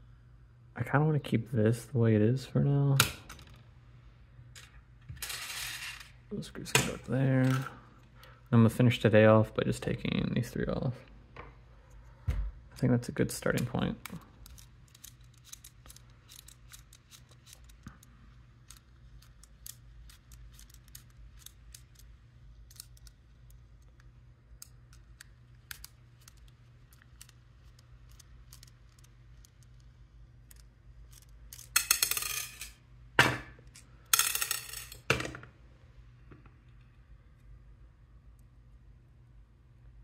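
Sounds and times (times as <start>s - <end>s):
rustling and clatter of parts: 4.5s - 8.1s, 13.5s - 24.0s, 24.6s - 35.5s.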